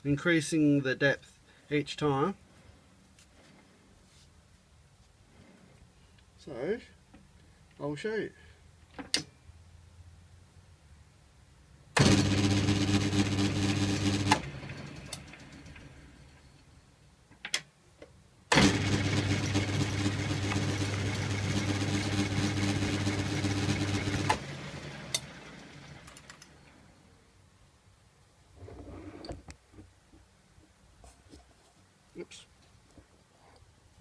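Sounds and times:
lathe motor humming: 12.0 - 15.6, 18.6 - 26.1.

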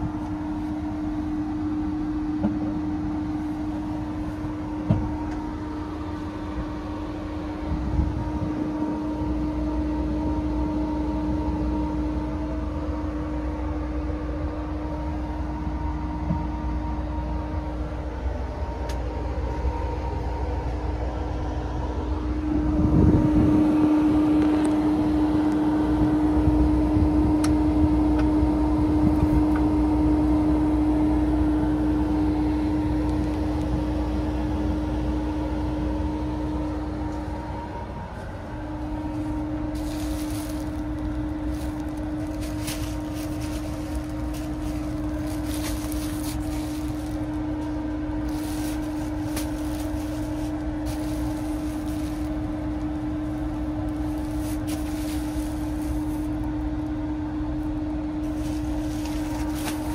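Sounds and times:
train equipment mechanical hum: 0.0 - 59.9
light clicks and rustles: 39.8 - 56.4.

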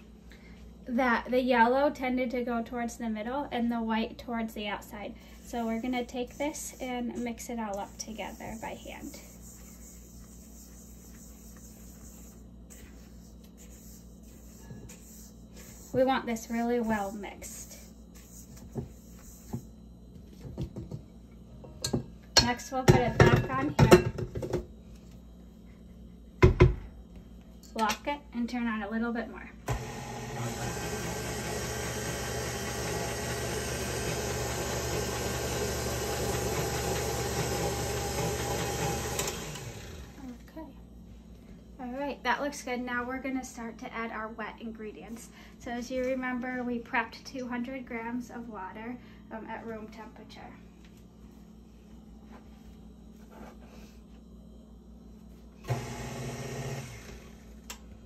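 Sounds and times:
stand mixer motor hum: 29.7 - 40.2, 55.7 - 57.4.

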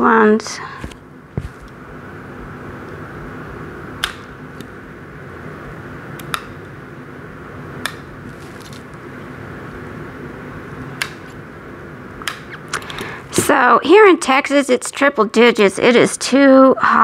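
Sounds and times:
background hum: 0.0 - 17.0.

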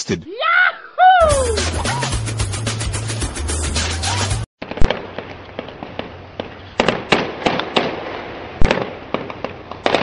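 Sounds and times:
fireworks crackling: 4.6 - 10.0
gunshots: 4.6 - 10.0.

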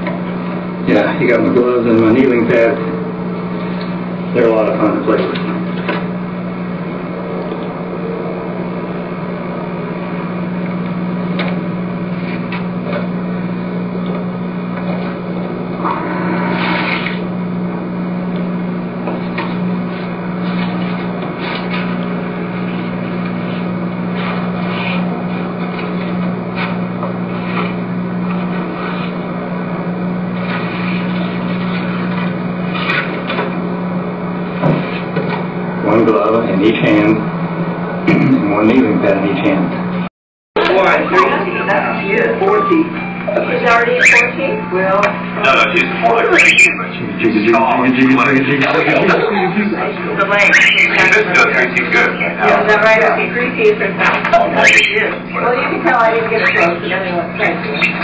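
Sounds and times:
low hum: 0.0 - 34.6.

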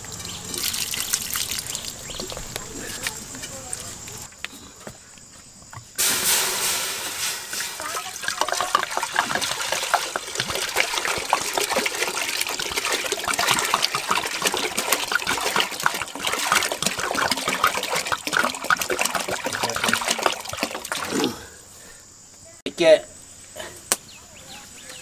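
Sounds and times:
water pouring into metal pot: 0.0 - 2.6, 6.0 - 21.3
water splashing: 0.0 - 4.3, 6.0 - 21.5.

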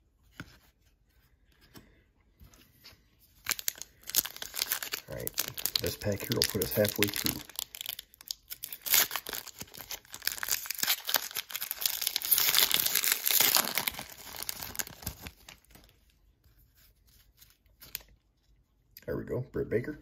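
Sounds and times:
wrapper tearing and crinkling: 3.4 - 16.1, 17.2 - 18.2.

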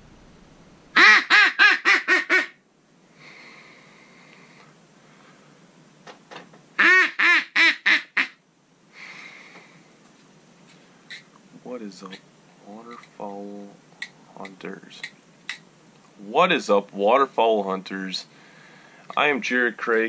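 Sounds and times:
duck call quacks: 1.0 - 2.6, 6.8 - 8.4.

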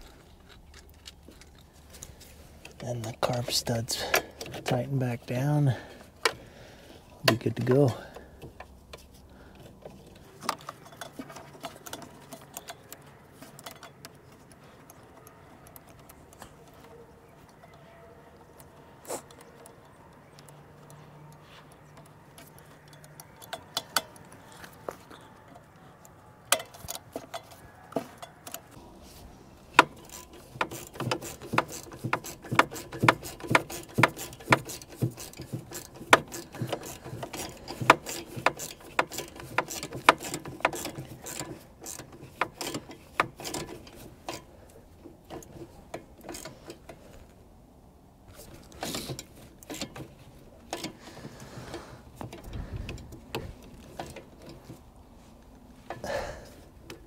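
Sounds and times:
ratchet wrench clicking: 19.2 - 24.8, 29.7 - 44.5.

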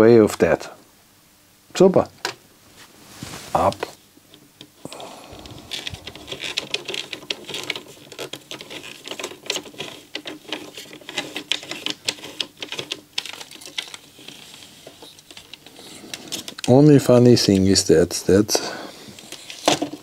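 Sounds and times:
plastic clicks and rattles: 5.4 - 16.8.

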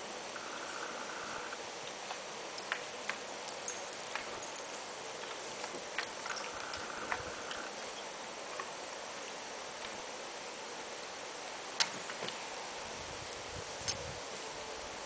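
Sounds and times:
horse hoofbeats on grass: 1.9 - 7.9.

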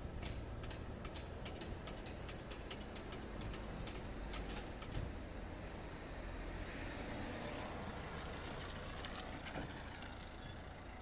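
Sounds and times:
car engine and tyre noise: 0.0 - 11.0
steady outdoor hum: 0.0 - 11.0.

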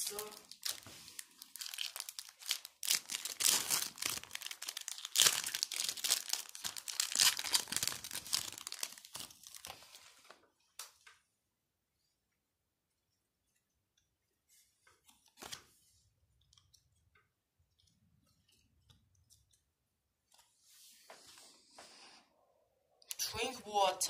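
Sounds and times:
foil wrapper tearing and crinkling: 0.2 - 10.0.

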